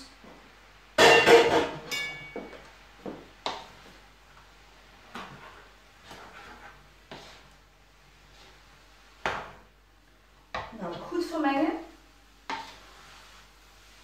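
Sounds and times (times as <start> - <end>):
wooden spatula scraping a wok: 3.1 - 9.6, 12.2 - 14.0.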